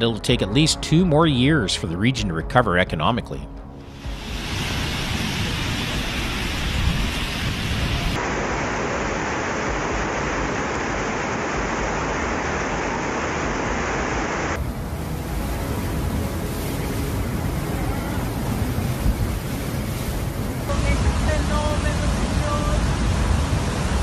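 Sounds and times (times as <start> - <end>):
floodwater rushing: 3.8 - 24.0
heavy rain: 3.8 - 24.0.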